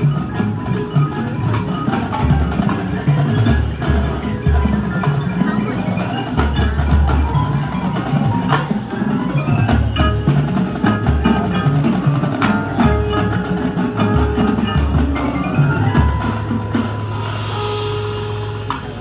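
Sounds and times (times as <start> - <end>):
drums: 0.0 - 19.0
mallet percussion: 0.0 - 19.0
marching band playing: 0.0 - 19.0.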